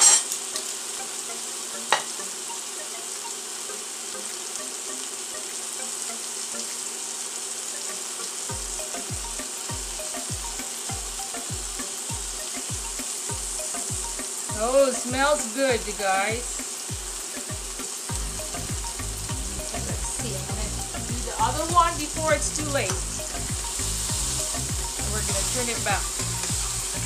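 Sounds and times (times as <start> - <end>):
meat sizzling in a pan: 0.0 - 27.0
low regular pulsing: 18.1 - 27.0.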